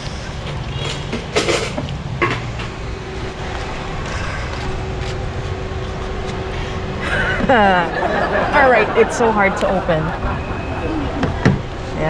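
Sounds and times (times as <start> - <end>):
street noise rumble: 0.0 - 12.0
faint steady hum: 2.7 - 12.0.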